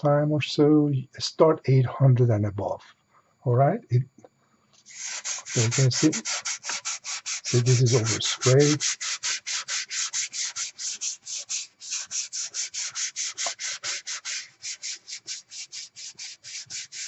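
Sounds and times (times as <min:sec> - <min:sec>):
wet sandpaper rubbing: 0:04.9 - 0:17.0.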